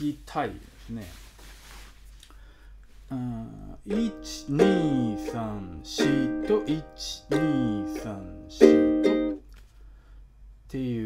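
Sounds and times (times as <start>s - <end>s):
ukulele strumming chords: 3.9s - 9.4s.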